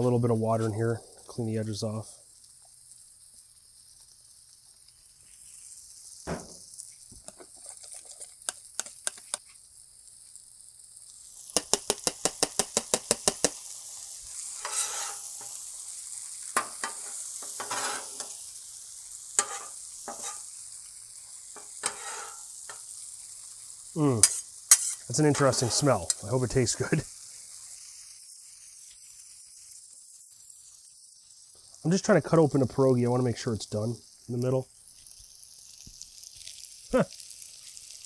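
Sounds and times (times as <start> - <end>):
food sizzling on griddle: 0.0 - 38.0
metal spatulas scraping griddle: 14.5 - 15.6, 16.6 - 18.4, 19.4 - 20.5, 21.6 - 22.8, 24.2 - 26.2.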